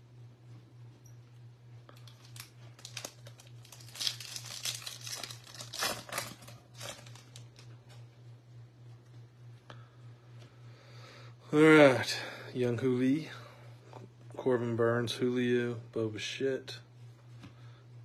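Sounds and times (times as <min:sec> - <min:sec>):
foil wrapper crinkling and tearing: 0:01.9 - 0:07.7.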